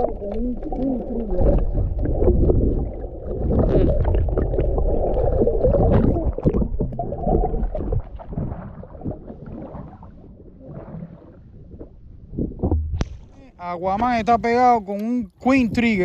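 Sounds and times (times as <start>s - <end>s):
muffled underwater rumble: 0.0s - 14.6s
small ticks of water: 14.8s - 15.9s.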